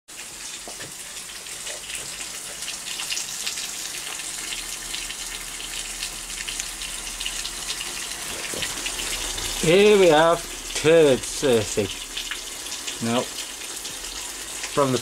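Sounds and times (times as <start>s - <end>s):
steady rain falling: 0.2s - 15.0s.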